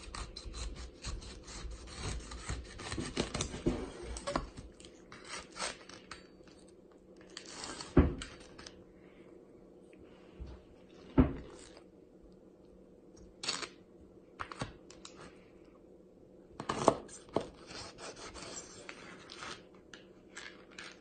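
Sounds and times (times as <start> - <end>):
knife sawing pineapple rind: 0.0 - 3.4, 17.6 - 18.8.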